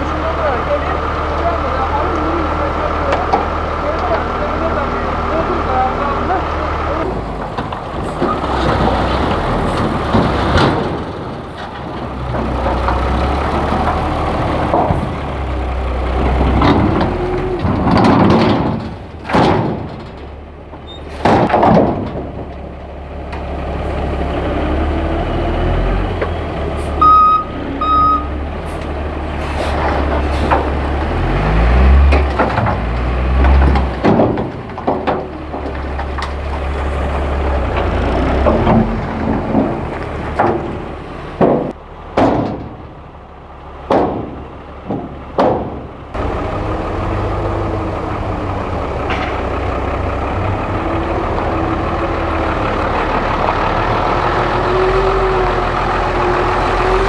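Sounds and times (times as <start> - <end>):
soil and rocks sliding: 0.0 - 24.8, 28.4 - 41.8
diesel truck engine running: 0.0 - 57.0
short beeps: 27.0 - 28.3.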